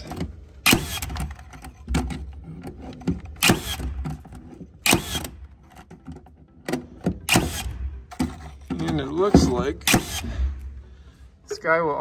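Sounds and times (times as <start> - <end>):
nailer shots: 0.6 - 1.4, 3.3 - 4.2, 4.8 - 5.4, 7.1 - 10.6.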